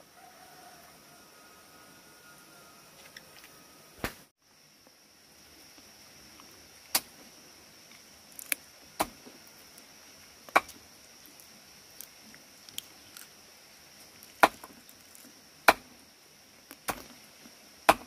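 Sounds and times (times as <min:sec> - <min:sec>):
high insect drone: 0:00.0 - 0:18.0
blade chopping into wood: 0:10.5 - 0:10.8, 0:14.4 - 0:14.7, 0:15.7 - 0:15.9, 0:16.8 - 0:17.1.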